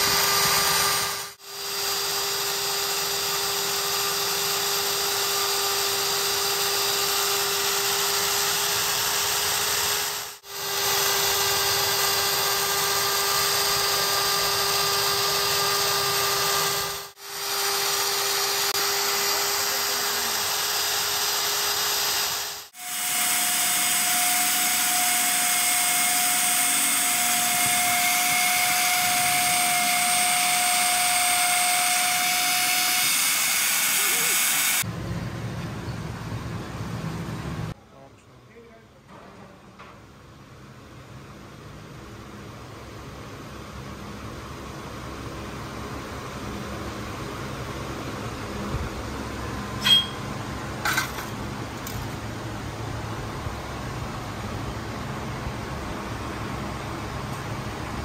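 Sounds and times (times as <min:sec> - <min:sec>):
bench drill whining: 0:00.0 - 0:34.9.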